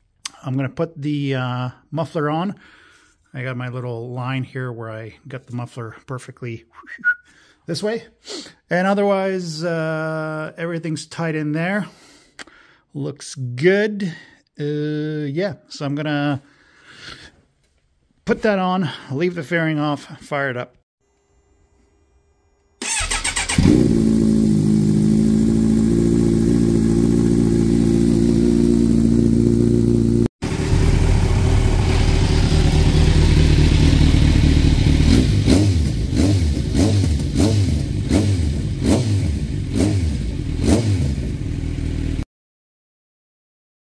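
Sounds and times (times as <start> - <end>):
motorcycle engine starting: 22.8 - 42.2
motorcycle throttle blips: 22.8 - 42.2
motorcycle engine idling: 23.6 - 38.8, 41.2 - 42.2.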